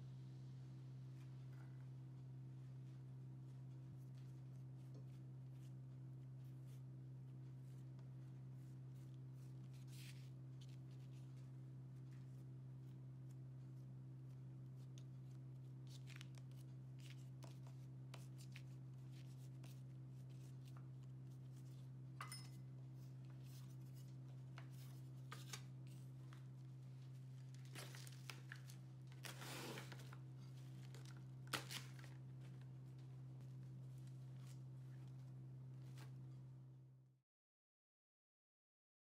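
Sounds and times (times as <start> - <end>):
steady low hum: 0.0 - 37.0
soft ticks of hands working dough: 1.1 - 22.0
plastic cling film tearing: 30.8 - 32.2.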